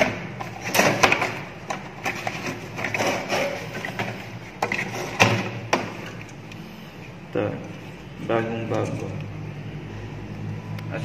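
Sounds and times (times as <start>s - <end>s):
cardboard rustling and scraping: 0.5s - 5.8s.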